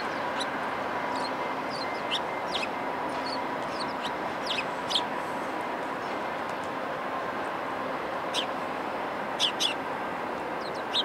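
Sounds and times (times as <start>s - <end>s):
high downward bird chirps: 0.0s - 5.1s, 9.4s - 9.8s
passenger train rumbling over tracks: 0.0s - 11.0s.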